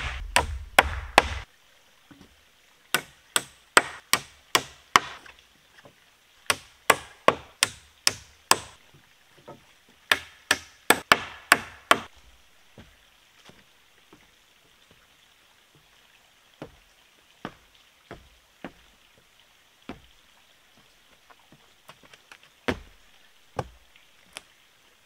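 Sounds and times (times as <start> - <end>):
footsteps on wooden boards: 12.7 - 15.0, 16.6 - 20.2, 20.8 - 24.5.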